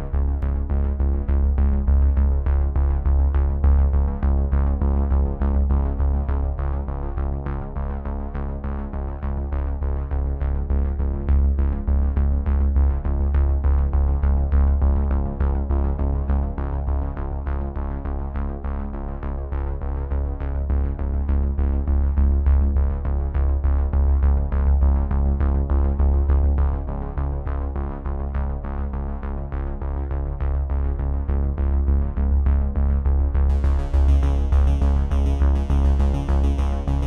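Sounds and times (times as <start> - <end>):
electronic music: 33.5 - 37.0.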